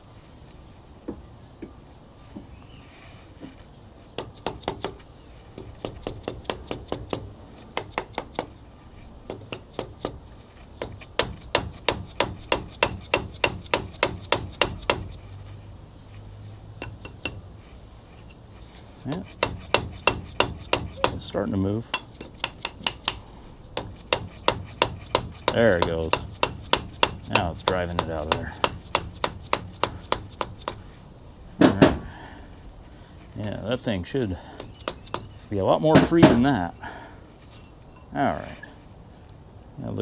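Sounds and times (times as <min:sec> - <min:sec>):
mallet tapping metal stud: 0:24.1 - 0:30.8.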